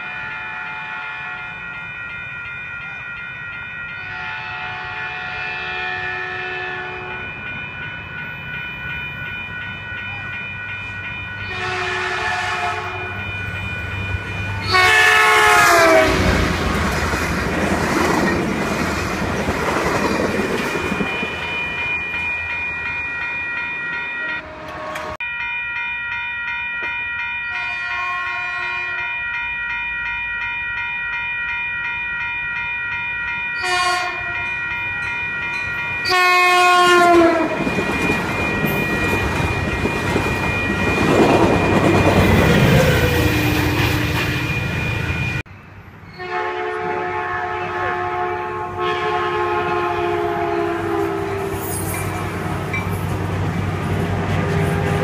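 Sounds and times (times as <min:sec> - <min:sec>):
train horn blowing: 0:00.0 - 0:01.6, 0:04.0 - 0:07.3, 0:11.4 - 0:13.2, 0:14.6 - 0:16.7, 0:24.4 - 0:25.2, 0:27.5 - 0:29.1, 0:33.6 - 0:34.5, 0:36.0 - 0:37.6, 0:46.2 - 0:52.1, 0:54.5 - 0:55.0
train rumbling past: 0:00.0 - 0:25.2, 0:33.2 - 0:55.0
crossing warning bells ringing: 0:00.0 - 0:55.0.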